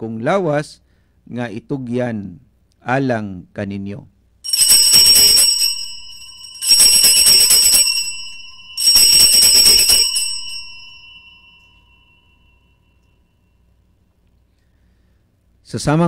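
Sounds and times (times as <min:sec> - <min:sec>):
altar bells jingling: 0:04.5 - 0:13.8.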